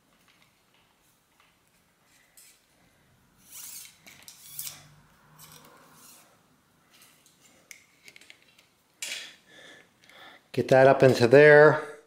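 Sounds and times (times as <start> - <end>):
cable scraping through housing: 3.4 - 6.3.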